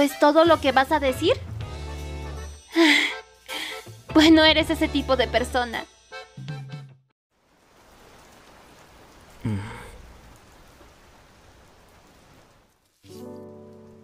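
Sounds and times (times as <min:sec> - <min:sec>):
breathy sigh: 0:02.7 - 0:03.9, 0:09.4 - 0:10.1
steady rain: 0:07.3 - 0:14.0.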